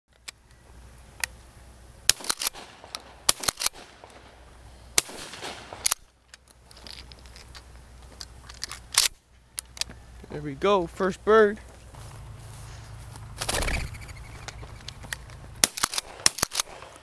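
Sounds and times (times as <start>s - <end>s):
shotgun shots: 2.1s - 6.2s, 15.6s - 17.0s.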